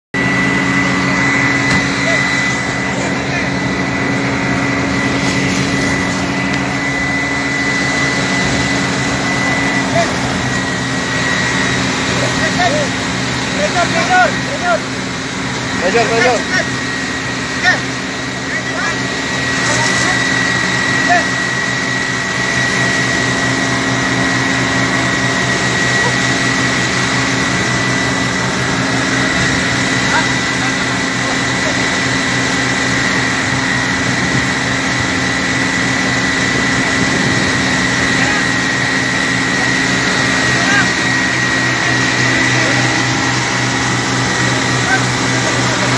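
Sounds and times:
engine running with high whine: 0:00.0 - 0:45.9
faint voices: 0:01.0 - 0:14.9, 0:24.0 - 0:33.4, 0:37.8 - 0:45.9.

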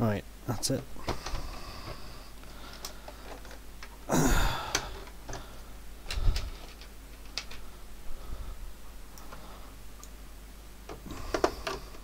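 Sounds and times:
plastic case handling noise: 0:01.0 - 0:02.1, 0:02.7 - 0:04.0, 0:04.6 - 0:07.7, 0:10.9 - 0:12.0.

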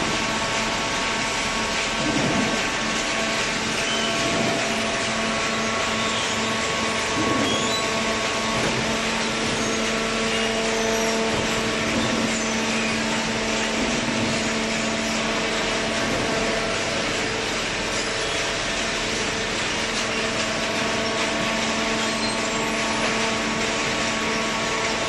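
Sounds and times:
hydraulic baling machinery drone: 0:00.0 - 0:25.0.

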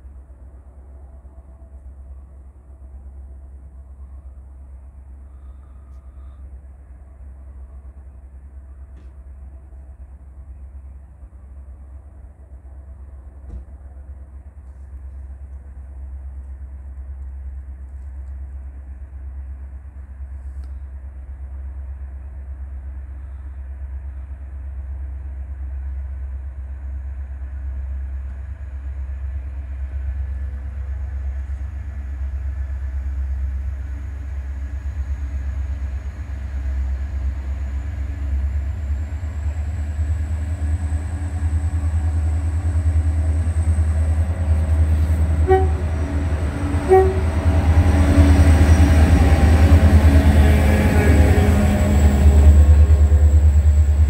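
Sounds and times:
diesel train engine rumble: 0:00.0 - 0:54.0
train horn toots: 0:44.9 - 0:48.2.

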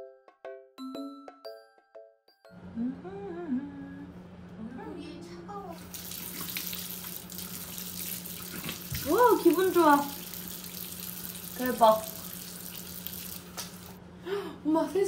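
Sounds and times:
steady low hum: 0:02.6 - 0:15.0
person humming: 0:02.7 - 0:04.2
tap water running into basin: 0:05.8 - 0:14.0.

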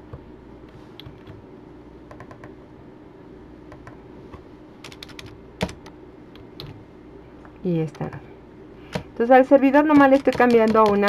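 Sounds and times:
faint steady hum: 0:00.0 - 0:11.0
keyboard keys clicking: 0:04.8 - 0:06.8, 0:09.8 - 0:11.0.

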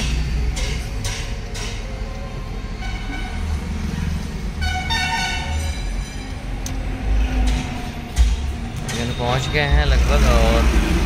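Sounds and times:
car road rumble: 0:00.0 - 0:11.0
vehicle horn honking: 0:02.8 - 0:03.6, 0:04.6 - 0:05.9.

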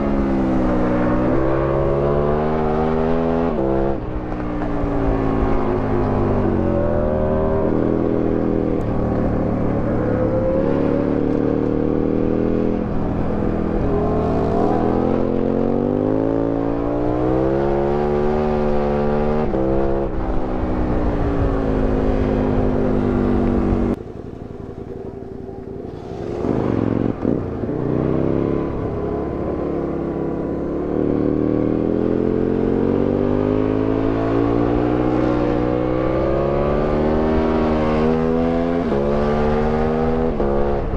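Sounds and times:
wind noise: 0:00.0 - 0:24.0, 0:33.8 - 0:40.9
motorcycle engine revving: 0:00.0 - 0:40.9.

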